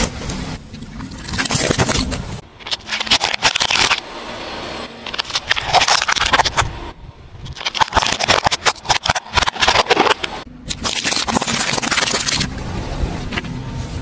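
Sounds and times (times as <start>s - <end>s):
plastic cracking under a tyre: 1.4s - 4.0s.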